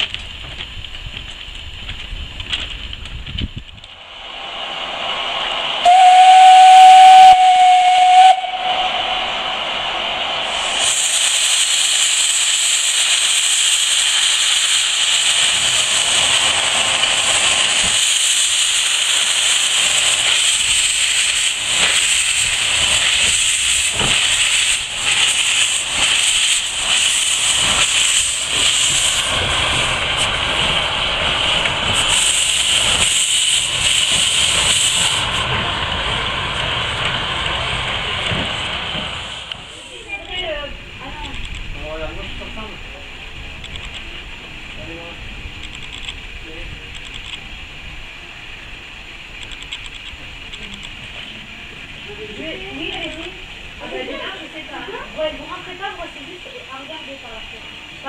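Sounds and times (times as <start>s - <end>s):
steam exhaust beats: 0.0s - 41.0s
steam locomotive hissing: 3.4s - 58.0s.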